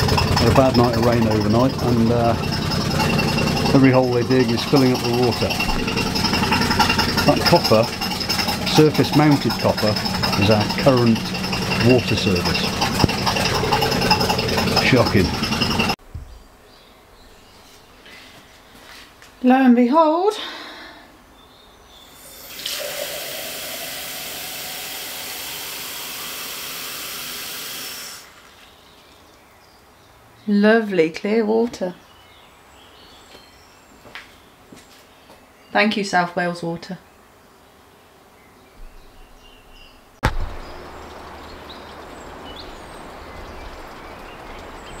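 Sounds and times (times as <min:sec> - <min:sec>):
low background rumble: 0:00.0 - 0:16.6
tap water running into glass: 0:22.3 - 0:28.0
bird chirps: 0:38.4 - 0:45.0.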